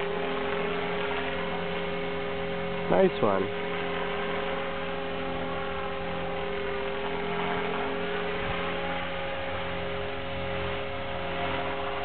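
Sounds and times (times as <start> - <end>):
rc helicopter motor whine: 0.0 - 12.0.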